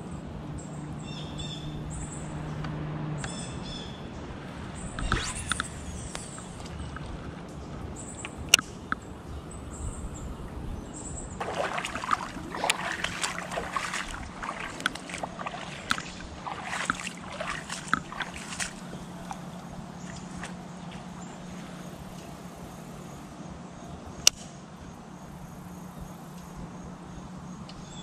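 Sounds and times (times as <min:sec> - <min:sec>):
footsteps through wet grass: 0:11.4 - 0:21.9.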